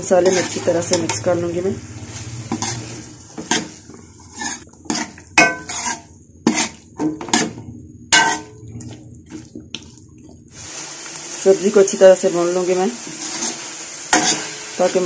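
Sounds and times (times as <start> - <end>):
metal spoon scraping a pot: 0.0 - 1.3, 2.4 - 7.6, 8.2 - 9.0, 13.1 - 14.7.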